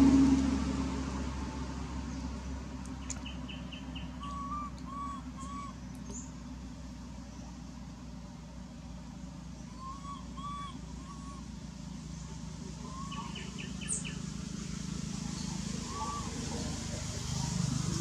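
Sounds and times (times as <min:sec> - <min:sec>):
steady low hum: 0:00.0 - 0:18.0
birds chirping: 0:02.0 - 0:18.0
whistled bird notes: 0:03.0 - 0:06.3, 0:09.6 - 0:11.5, 0:12.8 - 0:14.2, 0:15.3 - 0:16.7.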